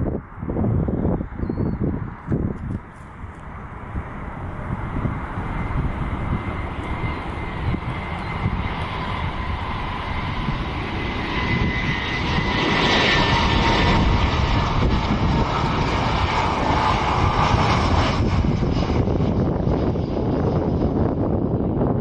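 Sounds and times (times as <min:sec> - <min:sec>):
jet engines rushing and whining: 0:00.0 - 0:22.0.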